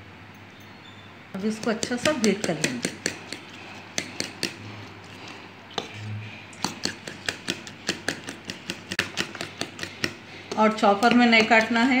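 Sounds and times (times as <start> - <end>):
utensil clinking against bowl: 6.6 - 12.0.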